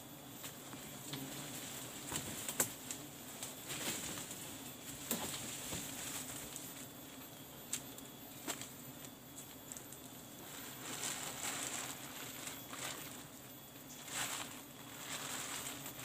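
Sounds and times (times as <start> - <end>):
faint background hum: 0.0 - 16.0
crackles and snaps: 2.0 - 10.2.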